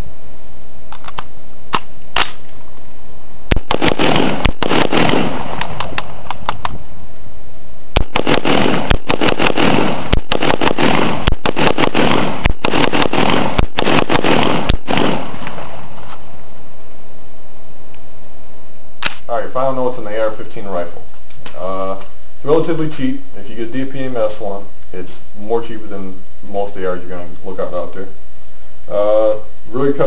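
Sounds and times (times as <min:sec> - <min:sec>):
rifle shots with echo: 0:03.5 - 0:06.4, 0:08.0 - 0:16.0.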